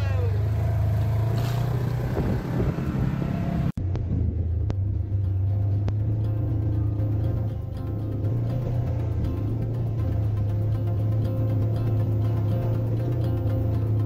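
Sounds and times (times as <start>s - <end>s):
side-by-side engine running: 0.0s - 14.0s.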